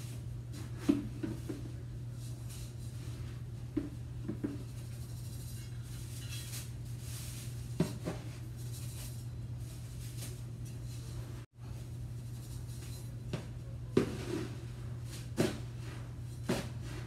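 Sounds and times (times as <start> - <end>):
metal scoop scraping litter: 5.2 - 7.6.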